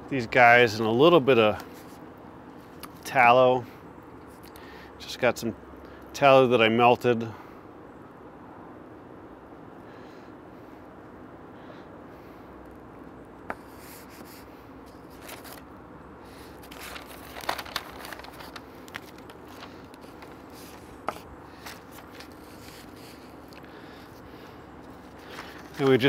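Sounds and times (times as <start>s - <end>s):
steady low hum: 0.0s - 26.0s
paper crinkling and rustling: 13.5s - 15.7s, 16.4s - 26.0s.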